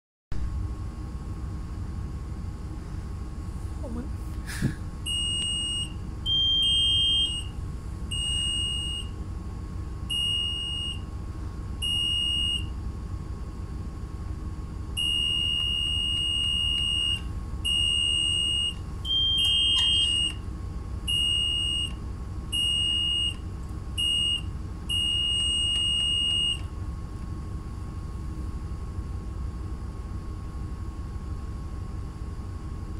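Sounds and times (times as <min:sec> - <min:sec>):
low machinery hum: 0:00.4 - 0:32.9
high two-pitch alarm beeps: 0:05.1 - 0:07.5, 0:08.1 - 0:09.1, 0:10.1 - 0:11.0, 0:11.8 - 0:12.7, 0:15.0 - 0:20.4, 0:21.1 - 0:23.4, 0:24.0 - 0:26.6.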